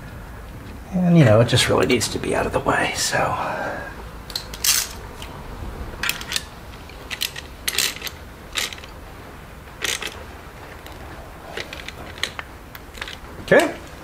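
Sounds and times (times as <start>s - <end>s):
socket ratchet clicking: 6.0s - 9.0s, 9.8s - 10.2s.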